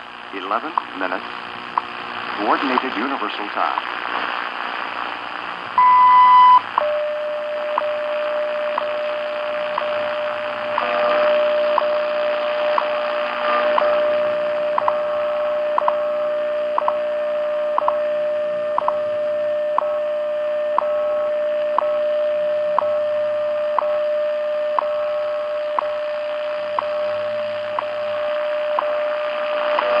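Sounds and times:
steady radio tone: 0.2s - 22.5s, 23.1s - 30.0s.

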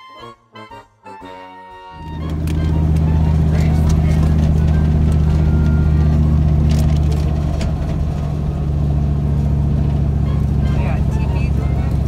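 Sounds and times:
road noise: 1.9s - 12.0s
vehicle engine drone: 1.9s - 12.0s.

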